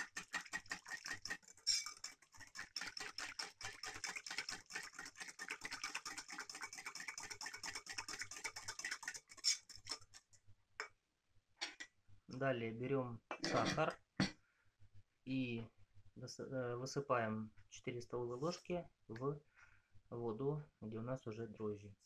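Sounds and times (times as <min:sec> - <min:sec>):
whisk clicking against bowl: 0:00.0 - 0:10.2.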